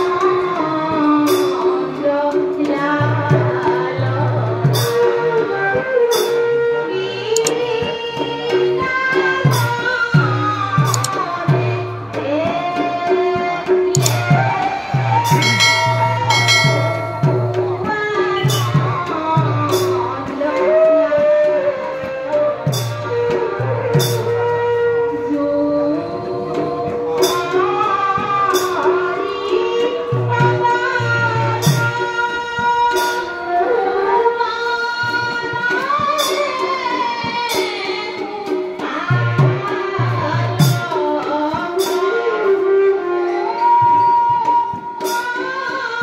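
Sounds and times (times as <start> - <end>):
bamboo flute melody: 4.8 - 7.9, 13.9 - 18.7, 19.9 - 27.9, 41.5 - 45.6
small hand cymbals struck: 14.0 - 14.2, 15.3 - 18.8
barrel drum beaten: 15.0 - 19.9.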